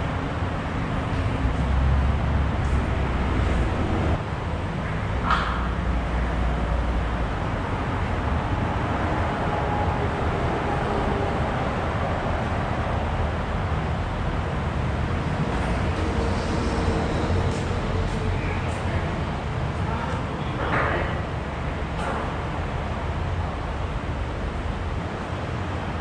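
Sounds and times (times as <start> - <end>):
low machine rumble: 0.0 - 26.0.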